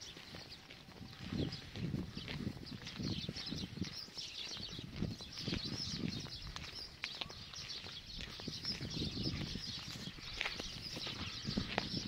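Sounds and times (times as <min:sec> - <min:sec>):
birds chirping: 0:00.0 - 0:12.0
footsteps on dirt: 0:00.0 - 0:12.0.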